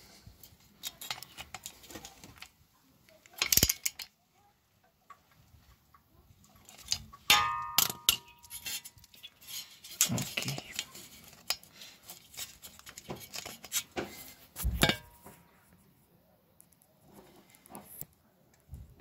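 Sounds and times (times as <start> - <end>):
socket wrench clinking: 7.3 - 8.8.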